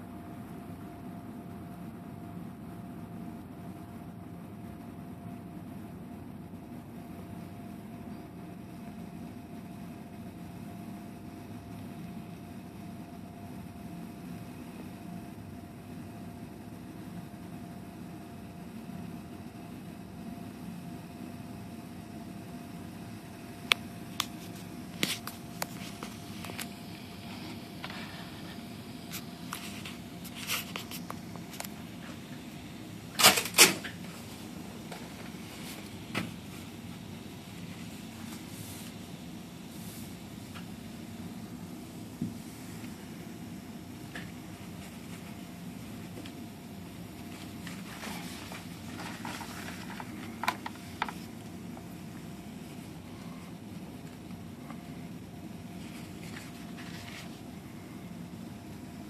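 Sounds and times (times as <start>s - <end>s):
faint steady hum: 0.0s - 59.0s
rustling: 47.3s - 51.3s.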